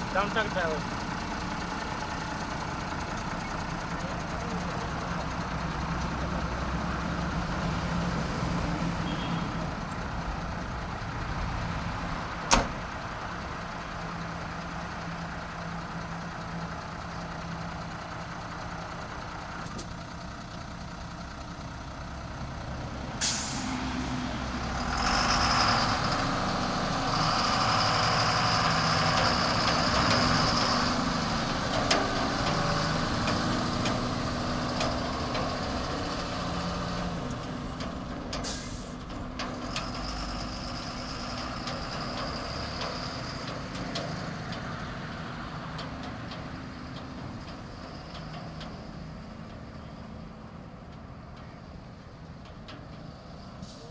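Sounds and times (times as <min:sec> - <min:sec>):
diesel truck engine idling: 0:00.0 - 0:53.9
air brake hiss: 0:23.2 - 0:23.8, 0:38.4 - 0:39.0.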